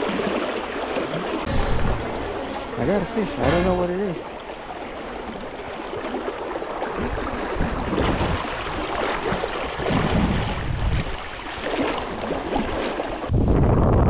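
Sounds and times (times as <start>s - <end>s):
river water rushing and splashing: 0.0s - 13.3s
wind buffeting microphone: 6.9s - 11.4s, 12.1s - 14.0s.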